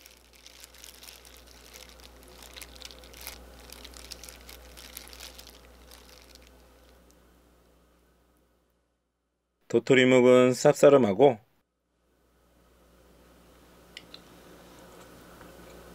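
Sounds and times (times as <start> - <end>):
plastic glove crinkling: 0.0 - 7.2.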